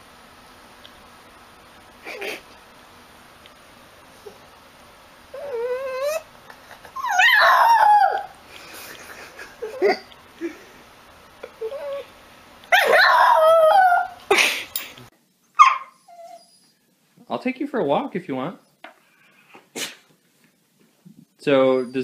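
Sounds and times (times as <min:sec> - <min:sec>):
dog howling and whining: 0:05.3 - 0:06.3, 0:06.9 - 0:08.4, 0:11.4 - 0:14.3, 0:15.6 - 0:16.8.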